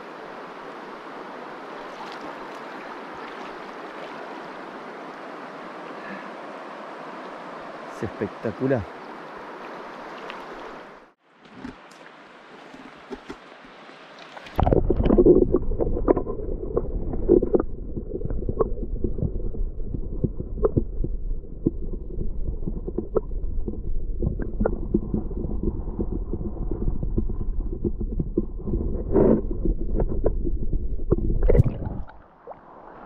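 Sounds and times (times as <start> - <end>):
faint airy stream hiss: 0.0 - 14.5
underwater clicks and knocks: 12.7 - 13.4, 14.5 - 32.2
muffled underwater river rumble: 14.6 - 33.0.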